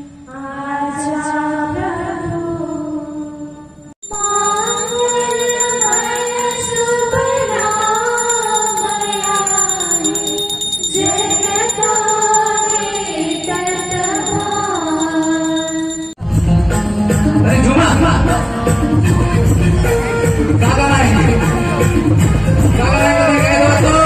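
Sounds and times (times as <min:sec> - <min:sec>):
jingling rhythm: 0:04.0 - 0:16.2.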